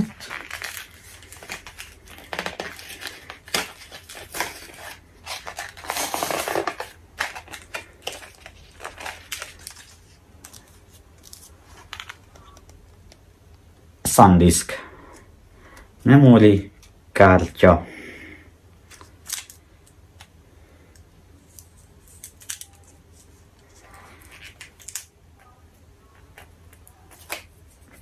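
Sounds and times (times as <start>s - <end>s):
plastic rustling: 0.0s - 12.7s
plastic blister pack crinkling: 0.0s - 12.8s, 21.4s - 25.2s.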